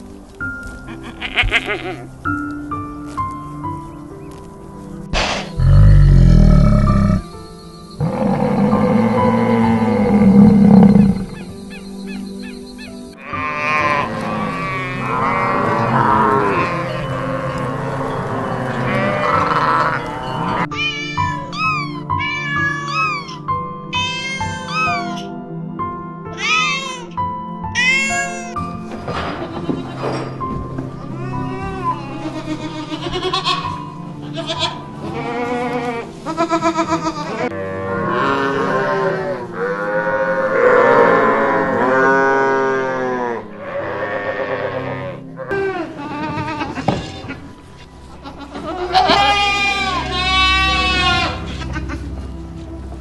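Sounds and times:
livestock calling: 0.8s - 2.1s, 5.6s - 7.4s, 8.0s - 23.4s, 31.2s - 47.5s, 48.2s - 52.0s
goats bleating: 0.9s - 2.1s, 31.2s - 39.9s, 40.6s - 47.5s, 48.2s - 52.0s.

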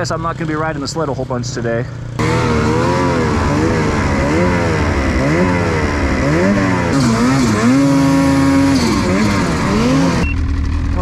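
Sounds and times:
snowmobile engine revving: 0.0s - 11.0s.

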